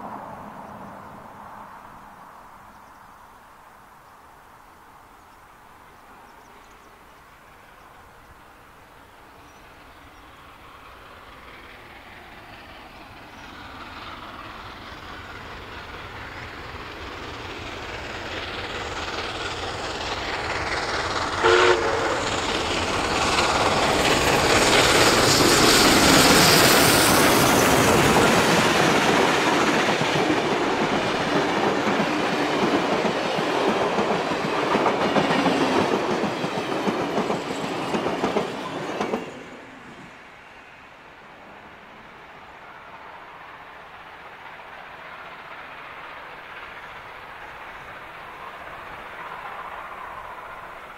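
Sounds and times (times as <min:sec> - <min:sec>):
steam locomotive passing: 0:00.0 - 0:50.9
steam whistle blast: 0:21.4 - 0:22.2.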